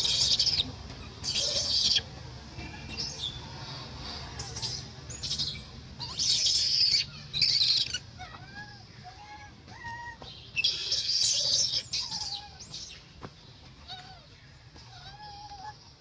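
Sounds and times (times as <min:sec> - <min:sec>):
baby monkey screaming: 0:00.0 - 0:02.1, 0:04.5 - 0:13.0, 0:13.8 - 0:14.3, 0:14.9 - 0:15.8
baby monkey whimpering: 0:01.3 - 0:02.0, 0:06.0 - 0:12.7, 0:14.9 - 0:15.8.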